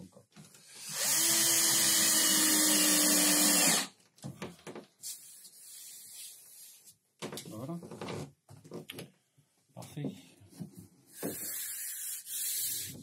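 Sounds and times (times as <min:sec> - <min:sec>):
cordless drill drilling into wood: 0:00.6 - 0:03.9.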